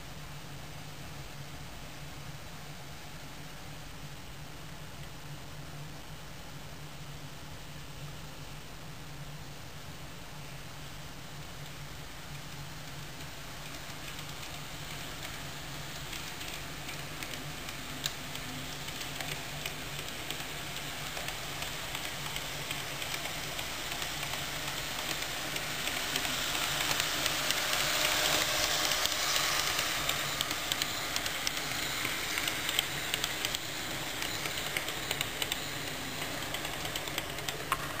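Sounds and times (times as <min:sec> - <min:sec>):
model train running on track: 0:11.0 - 0:38.0
faint clicks of wheels on rails: 0:11.4 - 0:38.0.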